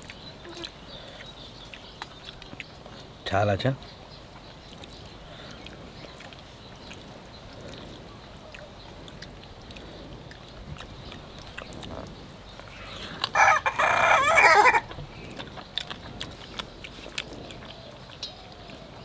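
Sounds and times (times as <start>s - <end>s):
rooster crowing: 13.3s - 14.9s.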